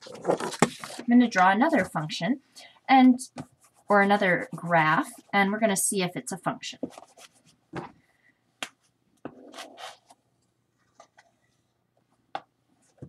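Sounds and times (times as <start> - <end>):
marker scratching on whiteboard: 9.3 - 10.1.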